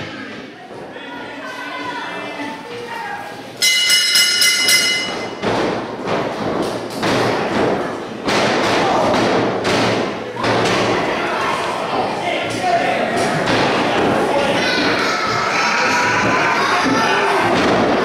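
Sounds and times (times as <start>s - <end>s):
ring bell rung rapidly: 3.6s - 5.4s
wrestlers thudding on ring: 4.9s - 11.3s, 11.9s - 18.0s.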